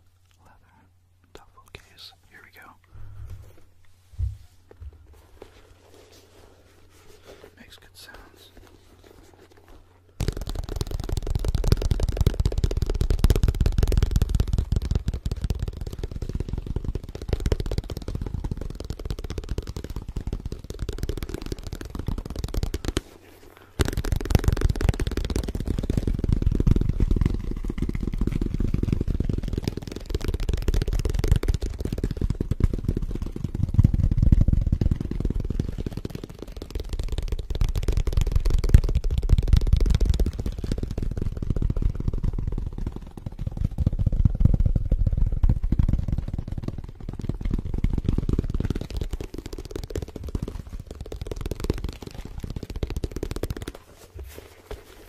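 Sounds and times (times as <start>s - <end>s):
fingertips tapping on leather case: 10.2s - 23.2s.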